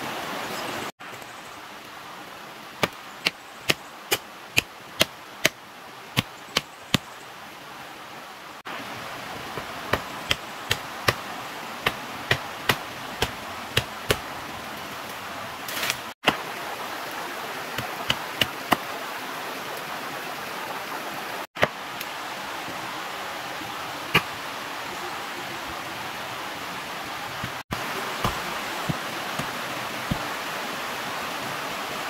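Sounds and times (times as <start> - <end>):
machete chopping bamboo: 9.9 - 11.2, 11.8 - 14.2
steady rushing hiss: 21.6 - 32.0.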